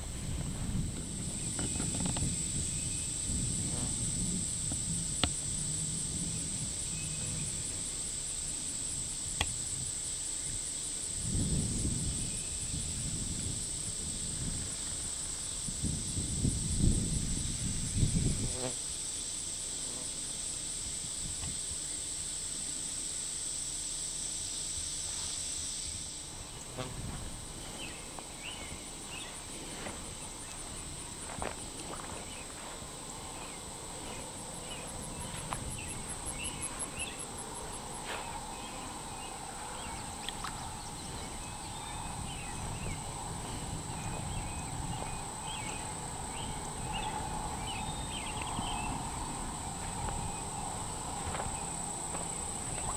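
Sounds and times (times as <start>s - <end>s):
insect chorus buzzing: 0.0s - 52.9s
fast pulsing insect trill: 0.5s - 52.9s
short insect chirps: 30.1s - 52.9s.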